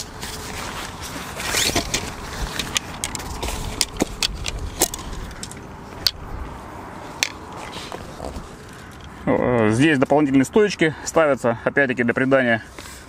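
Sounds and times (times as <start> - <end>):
fabric bag rustling: 0.0 - 4.0
tent poles clicking and clattering: 0.0 - 6.5, 7.1 - 9.7.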